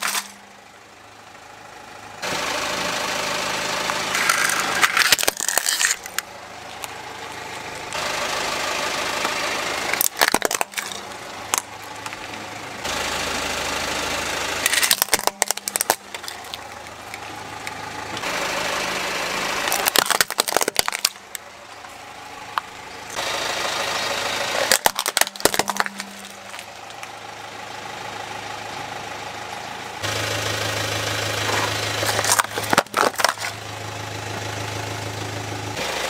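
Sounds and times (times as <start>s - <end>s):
plastic toys cracking under tyre: 0.0s - 0.4s, 3.9s - 7.0s, 9.9s - 12.3s, 14.6s - 18.3s, 19.6s - 21.4s, 24.6s - 27.2s, 32.0s - 33.6s
car engine idling: 0.0s - 36.0s.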